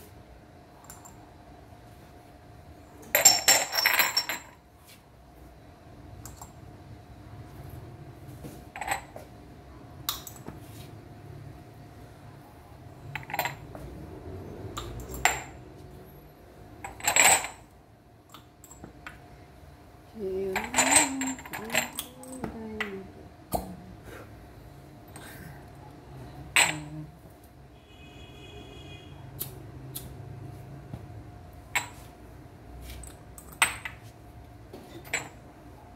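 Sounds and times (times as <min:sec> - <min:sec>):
glass cups clinking: 0:03.2 - 0:04.6, 0:20.6 - 0:22.5.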